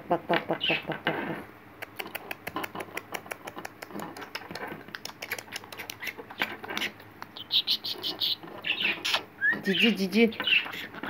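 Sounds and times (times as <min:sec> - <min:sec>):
high bird chirps: 0:07.3 - 0:10.9.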